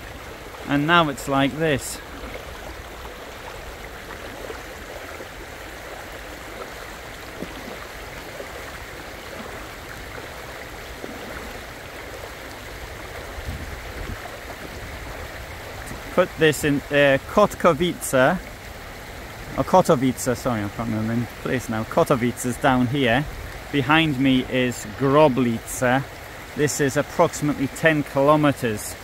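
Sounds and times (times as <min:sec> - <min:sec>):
floodwater rushing: 0:00.0 - 0:29.0.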